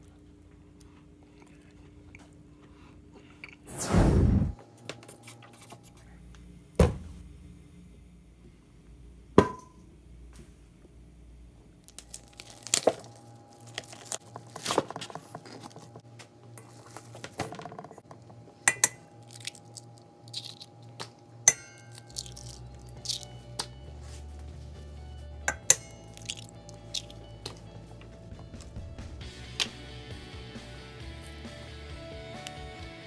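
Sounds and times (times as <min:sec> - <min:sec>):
eggs cracking: 0:11.8 - 0:16.0, 0:19.2 - 0:21.2, 0:21.8 - 0:23.3, 0:25.6 - 0:27.7
hands squishing raw meat: 0:26.0 - 0:27.7.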